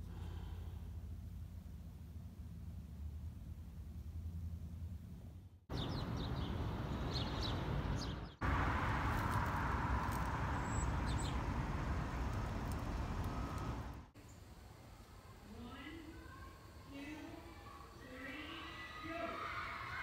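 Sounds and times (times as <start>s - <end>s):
outdoor background rush: 0.0s - 20.0s
small birds chirping: 5.7s - 8.4s, 10.0s - 14.5s.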